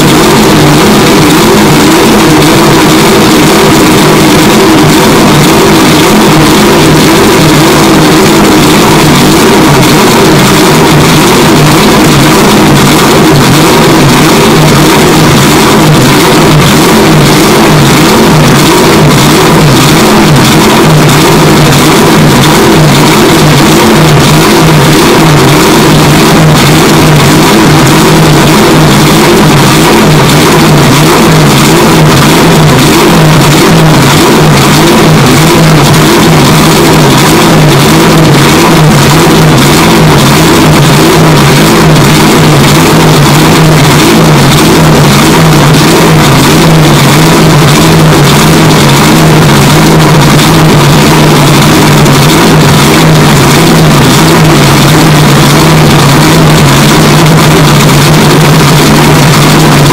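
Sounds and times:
race car engine running: 0.0s - 59.9s.

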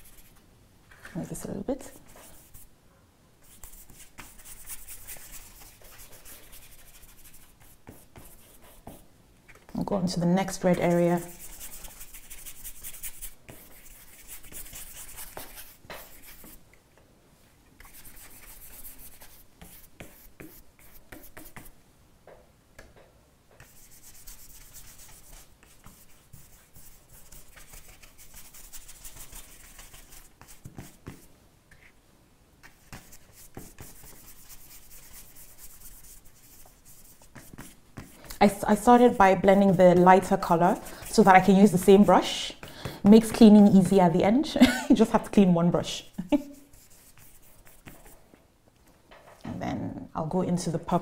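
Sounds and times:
paintbrush rubbing on paper: 0.0s - 0.4s, 3.4s - 9.0s, 10.4s - 16.6s, 17.8s - 21.7s, 23.6s - 32.0s, 32.6s - 44.1s, 45.9s - 48.2s.

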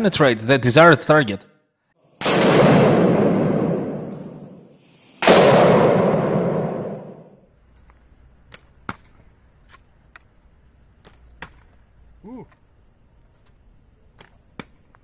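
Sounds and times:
gunshot with echo: 2.2s - 4.6s, 5.2s - 7.3s.

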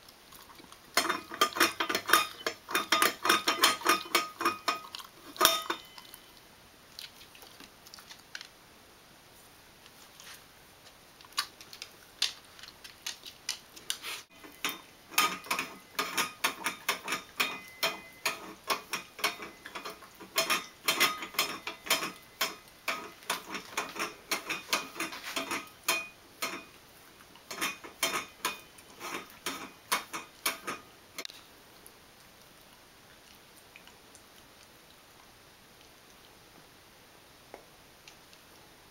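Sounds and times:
dog licking metal bowl: 0.3s - 6.2s, 14.4s - 30.6s.

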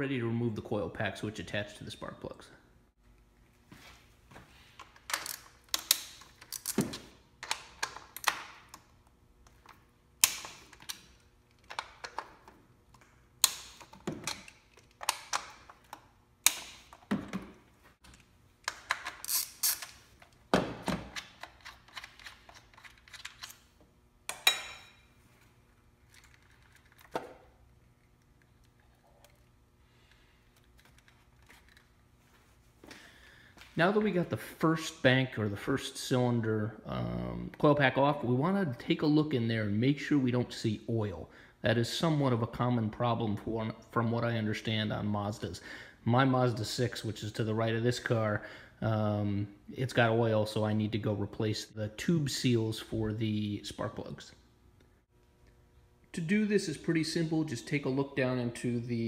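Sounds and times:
socket wrench ratcheting: 18.7s - 20.0s.

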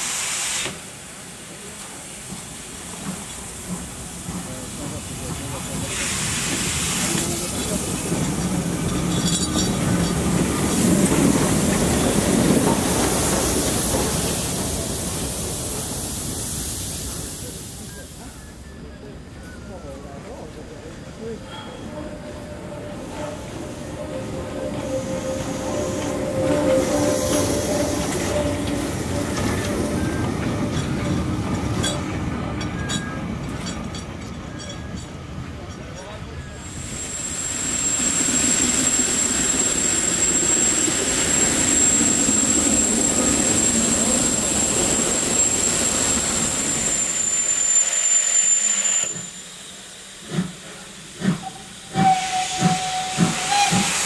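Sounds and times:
hissing steam: 0.0s - 32.3s, 36.5s - 54.0s
steam locomotive rolling past: 0.0s - 54.0s.

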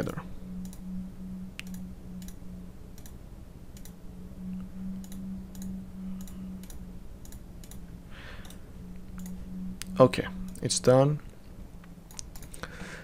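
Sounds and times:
steady low hum: 0.0s - 13.0s
computer mouse clicking: 0.6s - 0.8s, 1.6s - 4.0s, 5.0s - 10.7s, 11.8s - 12.7s.

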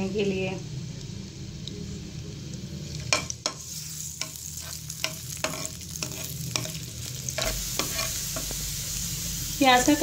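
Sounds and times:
onions sizzling in oil: 0.0s - 10.0s
metal spoon scraping pan: 4.2s - 8.5s.

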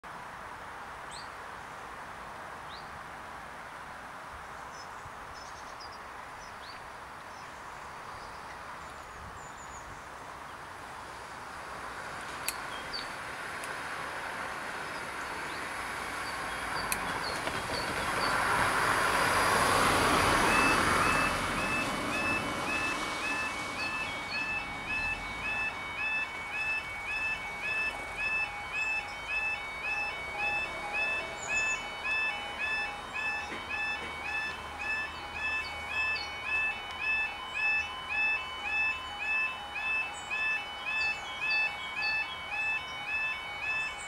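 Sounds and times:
rush of road noise: 0.0s - 44.0s
birds chirping: 14.9s - 44.0s
two-tone warning alarm beeping: 15.0s - 44.0s.

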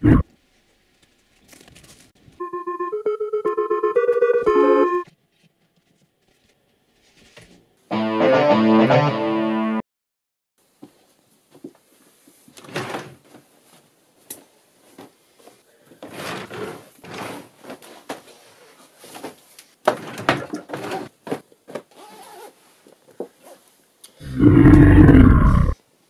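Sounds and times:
drawer sliding: 16.0s - 17.8s
loud low roar: 24.2s - 25.8s.

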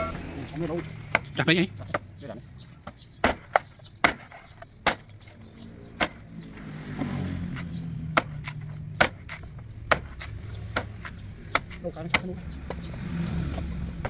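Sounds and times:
vehicle engine droning: 0.0s - 3.2s, 5.2s - 14.0s
knife chopping coconut: 3.2s - 5.1s, 7.4s - 12.8s.

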